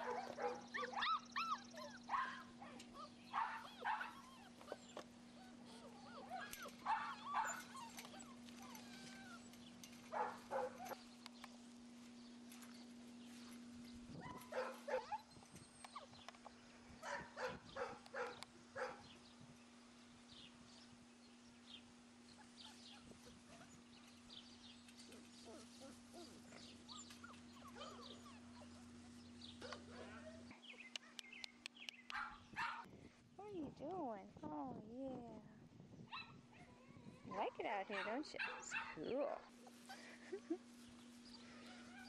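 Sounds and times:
puppies yipping and whining: 0:00.0 - 0:11.1, 0:14.1 - 0:16.4, 0:22.3 - 0:31.4, 0:36.1 - 0:42.0.

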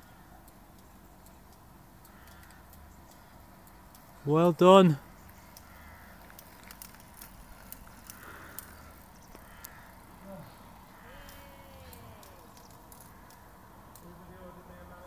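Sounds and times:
faint ticks and clicks: 0:00.0 - 0:15.0
faint falling call: 0:07.8 - 0:13.5.

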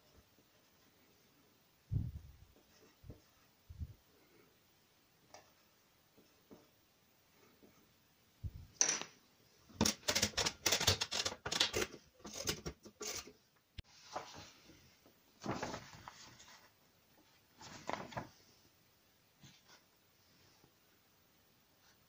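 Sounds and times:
paper rustling: 0:09.8 - 0:13.3, 0:14.0 - 0:14.8, 0:15.4 - 0:18.5.

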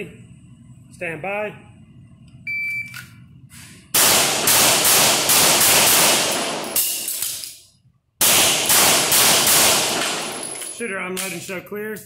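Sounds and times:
handgun shots echoing indoors: 0:04.0 - 0:11.4.

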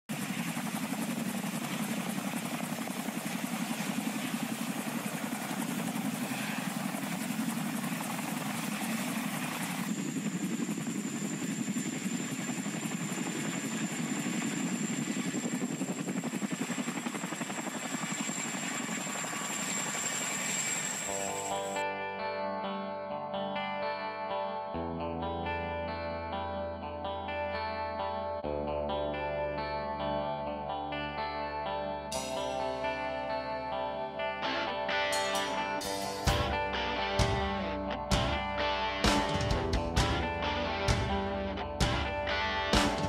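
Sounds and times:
helicopter rotors chopping: 0:00.1 - 0:21.8, 0:35.5 - 0:43.0
turbine whine: 0:00.1 - 0:21.8, 0:32.1 - 0:43.0.

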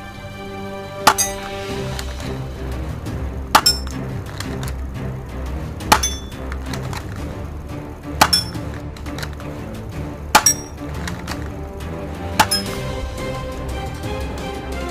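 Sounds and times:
background music: 0:00.0 - 0:14.9
metallic clink: 0:01.1 - 0:01.6, 0:03.6 - 0:04.0, 0:05.9 - 0:06.4, 0:08.2 - 0:08.7, 0:10.4 - 0:10.8, 0:12.4 - 0:12.8.

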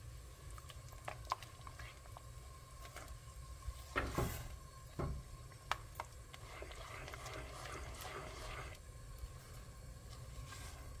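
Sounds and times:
spatula stirring syrup: 0:00.4 - 0:03.2, 0:05.5 - 0:08.8.

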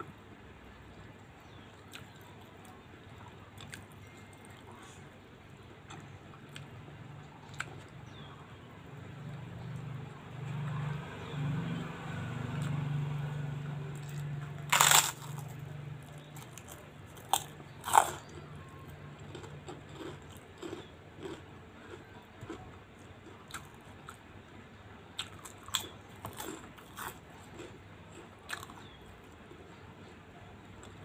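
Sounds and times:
chewing crackle: 0:01.5 - 0:05.0, 0:13.9 - 0:24.2, 0:25.2 - 0:29.0
loud cracker crunch: 0:14.0 - 0:18.5, 0:19.3 - 0:24.2, 0:25.2 - 0:29.0.

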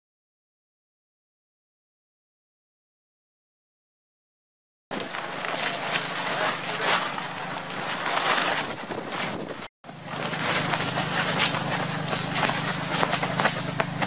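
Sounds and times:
wind buffeting microphone: 0:04.9 - 0:09.7
plastic sheeting flapping: 0:04.9 - 0:14.0
steady low hum: 0:04.9 - 0:14.0.

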